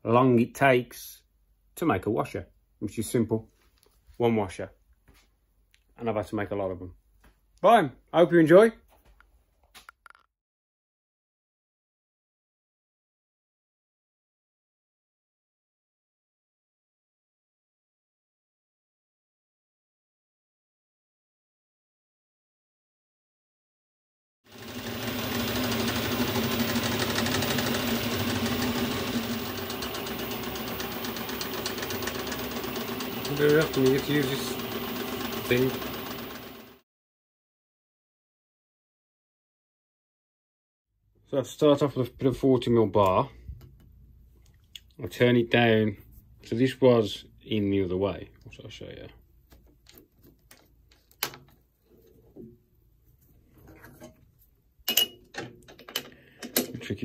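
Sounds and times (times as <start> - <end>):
lathe motor hum: 24.5 - 36.8
metal clicks and knocks: 54.9 - 56.8.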